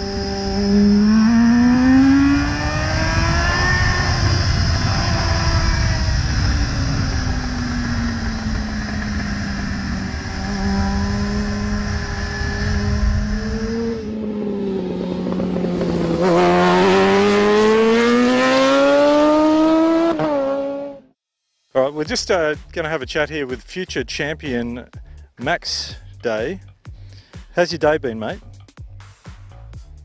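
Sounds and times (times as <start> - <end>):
motorcycle engine accelerating: 0.0 - 21.2
wind rush: 2.2 - 16.3.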